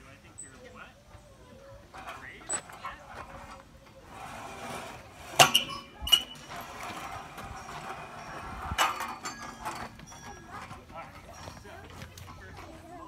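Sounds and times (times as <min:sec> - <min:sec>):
sharp clinks and knocks: 0:05.4 - 0:12.6.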